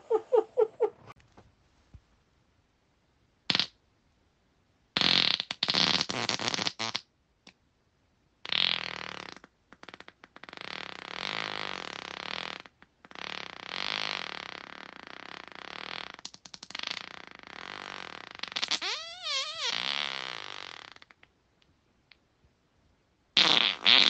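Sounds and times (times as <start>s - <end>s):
human farts: 3.5s - 3.8s, 5.0s - 7.1s, 8.4s - 21.3s, 23.4s - 24.0s.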